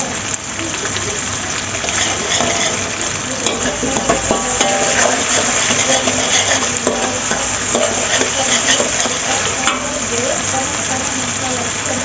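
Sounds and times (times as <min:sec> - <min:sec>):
eggs sizzling: 0:00.0 - 0:12.0
metal spatula scraping wok: 0:01.8 - 0:10.1.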